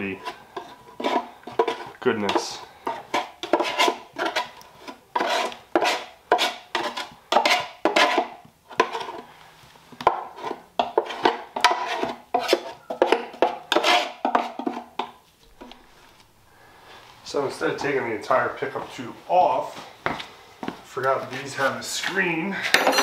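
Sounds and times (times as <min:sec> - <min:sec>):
metal scraping in oil pan: 0:00.2 - 0:09.3.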